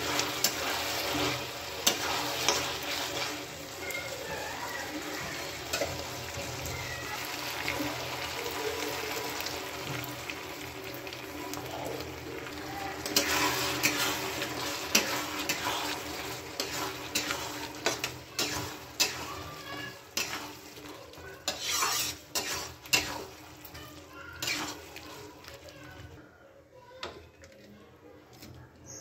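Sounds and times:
spatula scraping against wok: 0.0s - 7.3s, 12.9s - 26.1s
frying sizzle: 0.0s - 26.2s.

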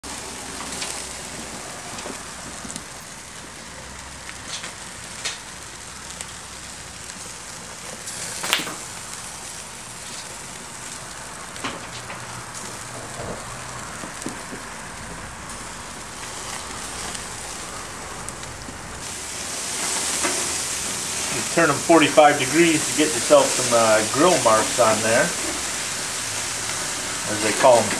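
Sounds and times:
steaks sizzling on grill: 0.0s - 27.9s
fat popping and crackling: 8.0s - 9.2s.

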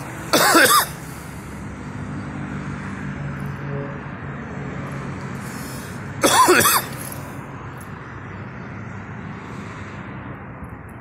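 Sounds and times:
steady background noise: 0.0s - 11.0s
person coughing: 0.3s - 1.0s, 6.2s - 7.2s.

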